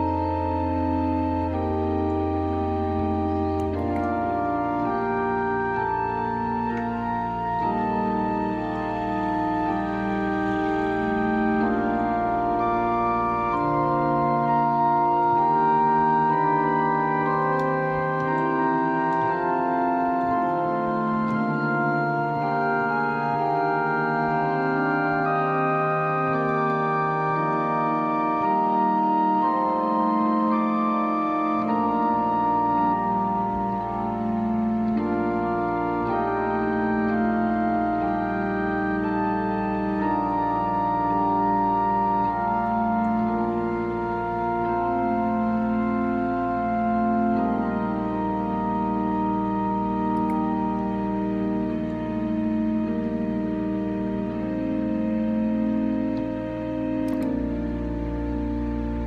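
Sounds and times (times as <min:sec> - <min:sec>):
low bass organ note: 0:00.0 - 0:28.4
organ sustained chords: 0:00.0 - 0:59.0.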